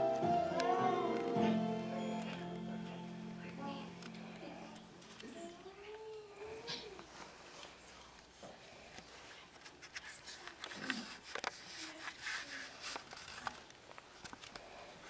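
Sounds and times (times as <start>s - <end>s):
faint murmur of voices: 1.5s - 9.6s
rustling: 3.5s - 15.0s.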